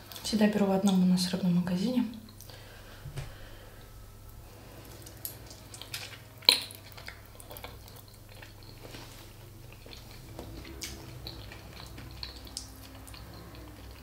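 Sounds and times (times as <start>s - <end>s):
mouth eating noises: 4.6s - 14.0s.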